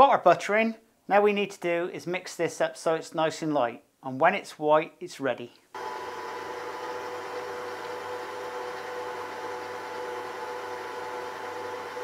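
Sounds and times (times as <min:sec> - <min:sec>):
stand mixer motor whining: 0:05.8 - 0:12.0.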